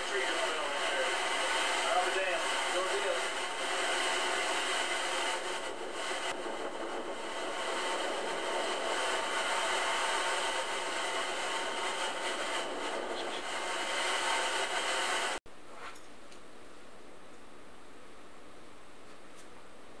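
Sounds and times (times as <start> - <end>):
strong wind: 2.4 - 15.4.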